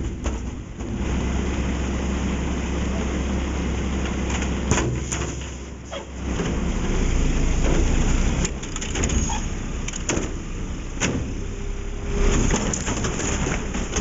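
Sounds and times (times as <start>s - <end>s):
sharp clanks and knocks: 0.0s - 1.0s
garbage truck engine and machinery: 0.0s - 14.0s.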